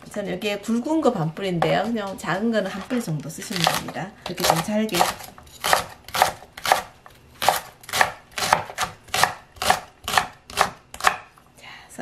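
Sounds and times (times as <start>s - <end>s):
knife chopping on wooden board: 3.6s - 11.3s.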